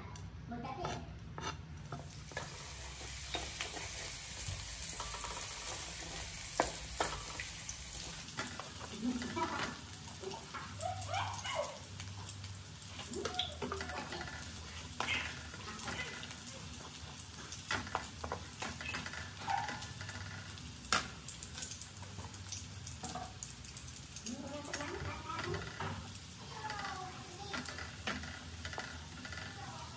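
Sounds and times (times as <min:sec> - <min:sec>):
wooden spatula scraping a pan: 0:00.7 - 0:10.7, 0:12.9 - 0:20.7
garlic sizzling in hot oil: 0:01.3 - 0:29.9.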